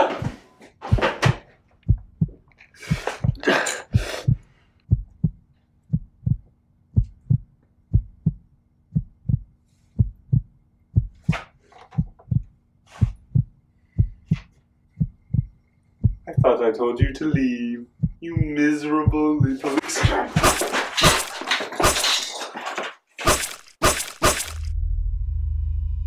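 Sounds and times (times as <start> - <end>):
heartbeat thumps: 0.8 - 21.2.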